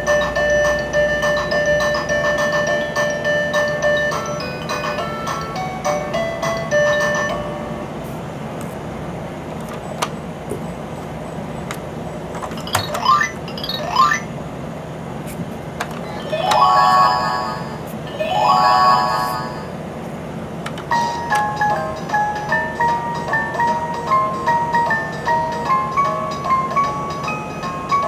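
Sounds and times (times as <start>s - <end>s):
steady low hum: 0.5s - 25.6s
doorbell-like chime phrases: 16.2s - 19.7s.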